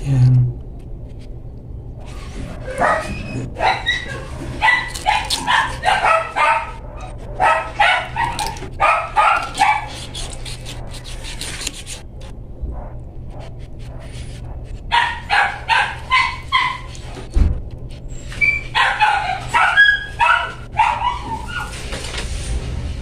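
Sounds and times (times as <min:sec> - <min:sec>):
dog barking and yipping: 0:02.0 - 0:12.0, 0:13.9 - 0:17.3, 0:18.2 - 0:22.1.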